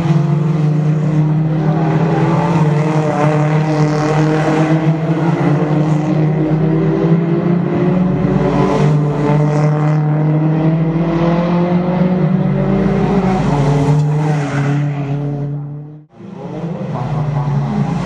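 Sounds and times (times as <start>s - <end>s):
race car engines running hard: 0.0s - 18.0s.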